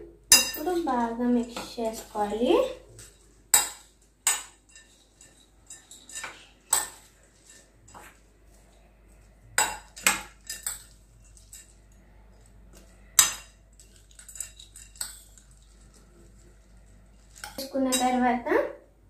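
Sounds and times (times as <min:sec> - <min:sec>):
spoon clinking in a ceramic bowl: 0:00.3 - 0:00.8, 0:03.0 - 0:08.2, 0:09.6 - 0:15.9, 0:17.2 - 0:18.2.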